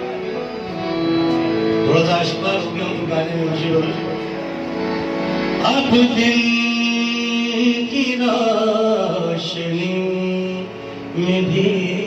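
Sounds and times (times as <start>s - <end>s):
harmonium: 0.0s - 12.0s
man singing: 1.7s - 4.4s, 5.5s - 12.0s.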